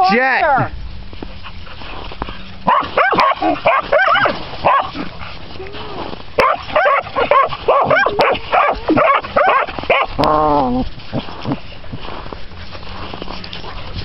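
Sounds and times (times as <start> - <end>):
dog barking and yipping: 2.6 - 5.2, 6.4 - 10.2.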